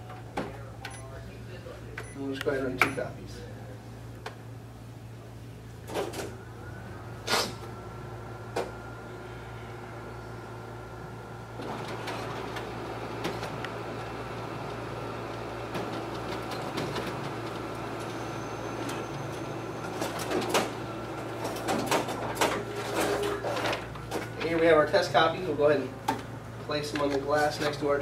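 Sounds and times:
copier running: 0:00.0 - 0:28.0
paper feed clicks and clacks: 0:14.6 - 0:18.1, 0:19.9 - 0:24.8, 0:26.9 - 0:27.8.

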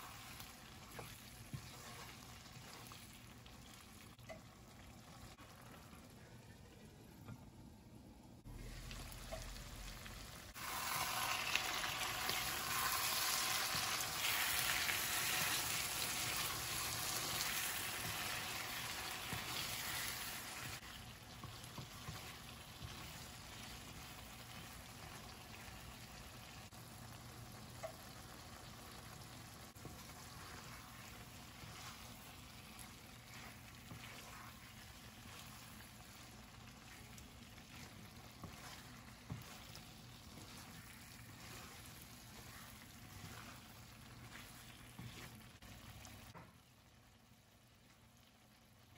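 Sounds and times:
wooden spatula scraping a pan: 0:00.0 - 0:04.0, 0:10.5 - 0:26.3, 0:29.7 - 0:46.4
chicken sizzling in a pan: 0:00.0 - 0:06.5, 0:08.4 - 0:48.9.

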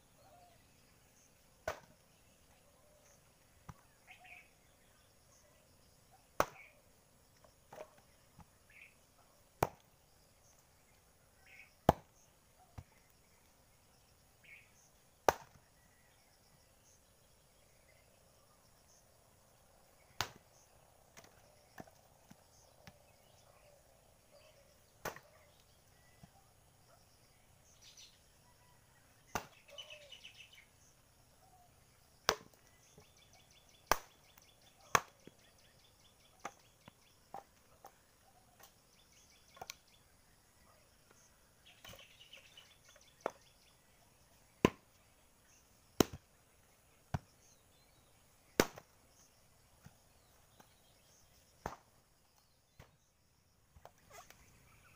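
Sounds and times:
faint chirping: 0:00.0 - 0:54.9
axe chopping firewood: 0:01.6 - 0:01.9, 0:06.4 - 0:06.7, 0:07.7 - 0:08.0, 0:09.6 - 0:09.9, 0:11.8 - 0:12.1, 0:15.3 - 0:15.6, 0:20.2 - 0:20.4, 0:25.0 - 0:25.3, 0:29.3 - 0:29.6, 0:32.3 - 0:32.6, 0:33.9 - 0:34.2, 0:34.9 - 0:35.2, 0:44.6 - 0:44.8, 0:46.0 - 0:46.2, 0:47.1 - 0:47.3, 0:48.6 - 0:48.9, 0:51.6 - 0:51.9.

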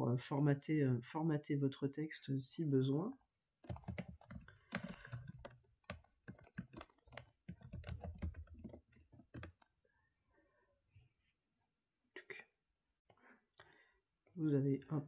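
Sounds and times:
computer keyboard typing: 0:03.6 - 0:09.7.

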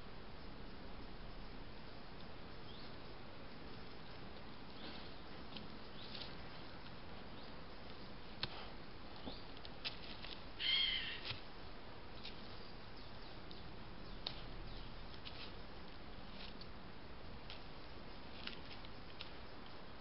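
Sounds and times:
steady hiss: 0:00.0 - 0:20.0
light ticks and rustles: 0:02.1 - 0:20.0
harsh bird call: 0:10.6 - 0:11.3.

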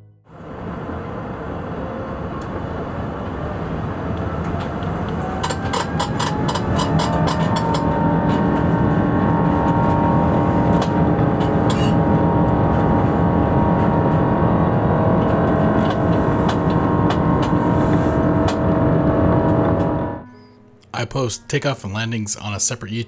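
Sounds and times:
jet engines roaring: 0:00.4 - 0:20.2.

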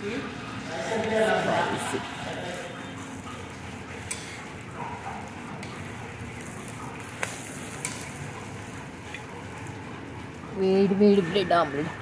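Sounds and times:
omelette sizzling on a griddle: 0:00.0 - 0:11.6
spatula clicking on griddle: 0:06.4 - 0:09.3.

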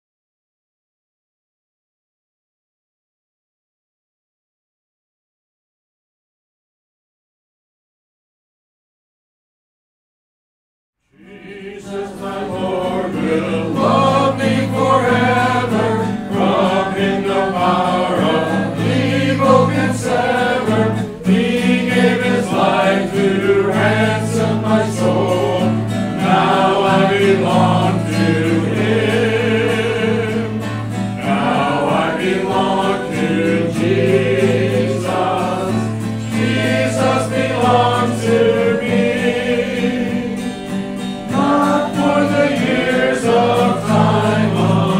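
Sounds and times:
congregation singing a hymn: 0:11.2 - 0:44.9
guitar accompaniment: 0:11.2 - 0:44.9.

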